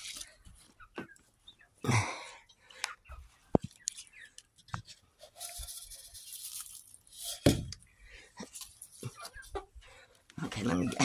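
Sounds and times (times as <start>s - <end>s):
plastic bag crinkling: 5.4s - 7.3s.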